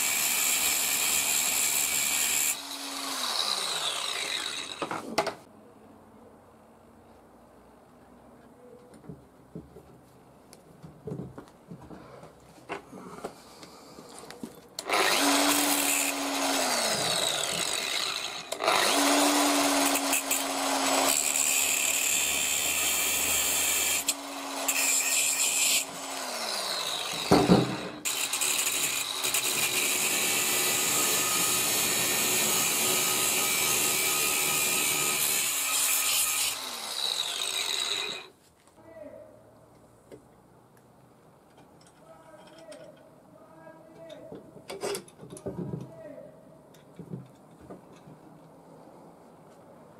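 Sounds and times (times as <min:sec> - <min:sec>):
angle grinder grinding steel: 0:00.0 - 0:05.0, 0:14.8 - 0:38.3.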